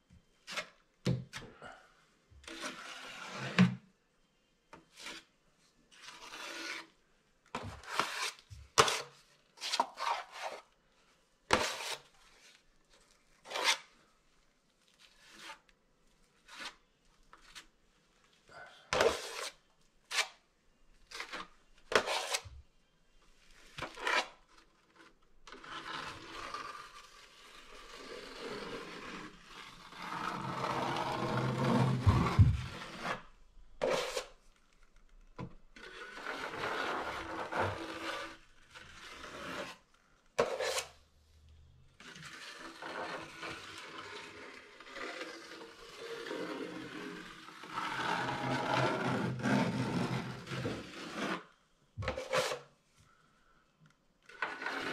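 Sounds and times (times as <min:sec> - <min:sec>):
taping knife scraping drywall: 0:02.4 - 0:03.8, 0:04.8 - 0:05.3, 0:06.0 - 0:07.0, 0:07.6 - 0:10.8, 0:11.5 - 0:12.6, 0:13.4 - 0:14.0, 0:15.0 - 0:15.7, 0:16.4 - 0:16.9, 0:18.9 - 0:20.4, 0:21.1 - 0:22.6, 0:23.7 - 0:34.5, 0:35.8 - 0:41.0, 0:42.0 - 0:52.7, 0:54.2 - 0:54.9.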